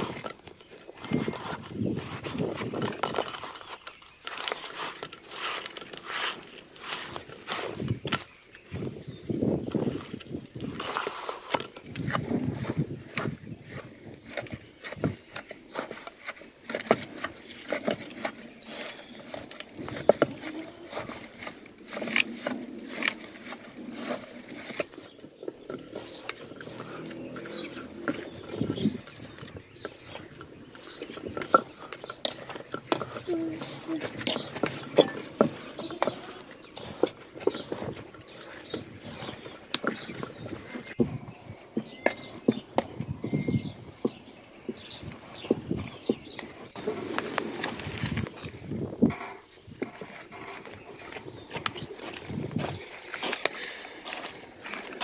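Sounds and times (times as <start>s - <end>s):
hand rubbing and scraping in pot: 0.0s - 8.2s, 9.9s - 41.0s.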